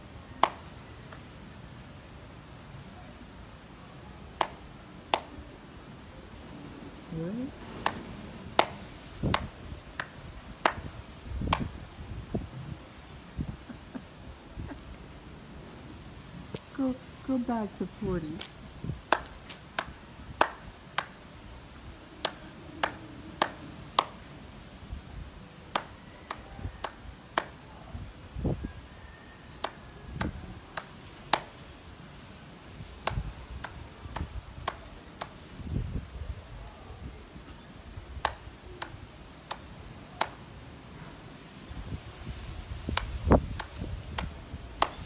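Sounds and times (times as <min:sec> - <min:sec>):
hands slapping together: 0:00.4 - 0:01.2, 0:04.4 - 0:05.4, 0:07.8 - 0:08.0, 0:08.6 - 0:11.7, 0:19.1 - 0:21.2, 0:22.2 - 0:24.2, 0:25.7 - 0:27.6, 0:29.6 - 0:31.6, 0:33.0 - 0:35.4, 0:38.2 - 0:40.4, 0:42.9 - 0:45.0.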